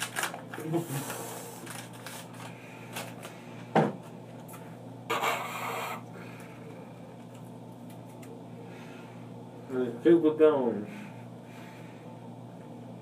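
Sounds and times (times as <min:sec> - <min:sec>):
paper tea bag rustling: 0:00.0 - 0:03.3.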